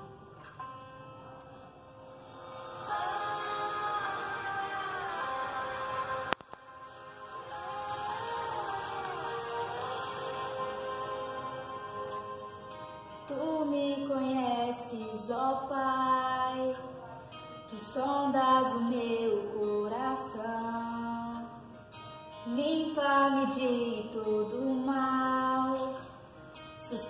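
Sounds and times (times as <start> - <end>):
instrumental backing track: 0.0 - 14.2
woman singing: 2.8 - 12.6, 13.2 - 21.6, 22.4 - 26.2, 26.8 - 27.0.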